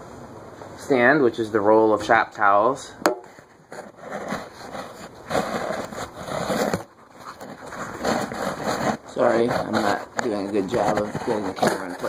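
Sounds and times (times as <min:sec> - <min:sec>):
rustling and scraping: 0:03.2 - 0:12.0.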